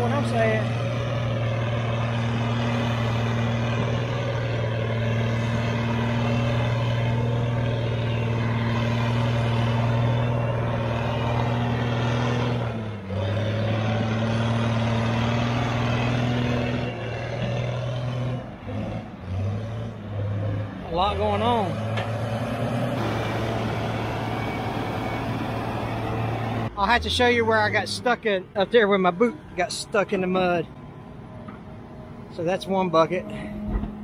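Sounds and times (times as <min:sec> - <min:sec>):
diesel engine droning: 0:00.0 - 0:34.0.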